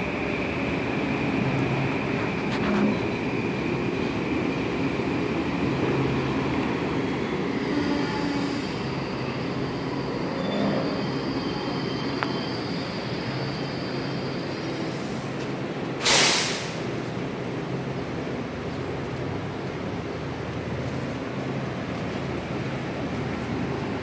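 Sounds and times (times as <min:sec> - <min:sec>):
electric train rumbling: 0:00.0 - 0:24.0
high wheel squeal: 0:07.5 - 0:15.4
loud burst of hiss: 0:16.0 - 0:16.9.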